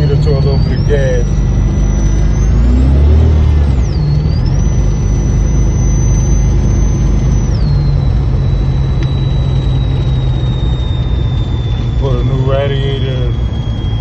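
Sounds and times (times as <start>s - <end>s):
car engine and road rumble: 0.0s - 14.0s
thin high whine: 0.0s - 14.0s.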